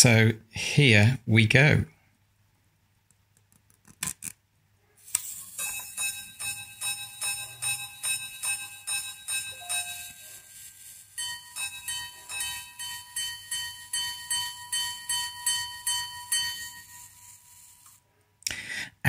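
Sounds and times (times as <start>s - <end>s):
watch gongs ringing: 5.5s - 17.8s.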